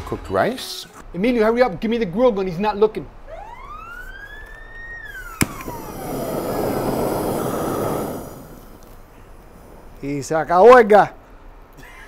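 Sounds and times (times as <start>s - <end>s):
siren-like whistle gliding: 3.3s - 9.3s
torch flame rushing blast: 5.1s - 10.1s
torch igniter click: 5.2s - 9.5s.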